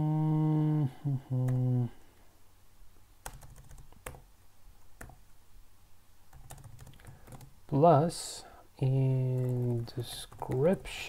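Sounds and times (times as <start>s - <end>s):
man humming: 0.0s - 2.2s, 8.8s - 11.0s
computer keyboard keystrokes: 3.2s - 4.2s, 6.3s - 7.5s.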